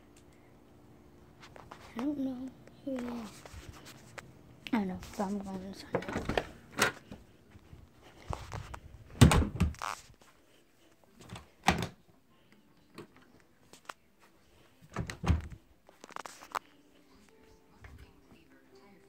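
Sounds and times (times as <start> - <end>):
door shutting with thud: 9.2 - 9.8.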